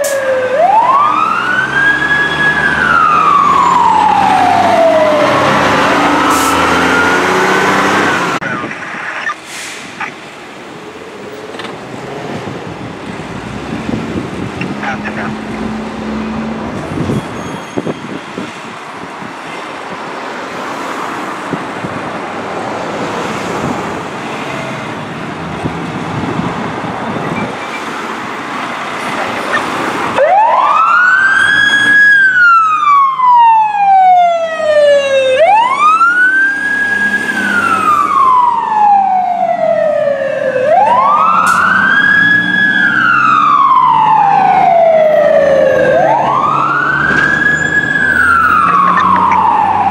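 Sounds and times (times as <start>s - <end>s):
siren wailing: 0.0s - 9.4s, 29.4s - 49.9s.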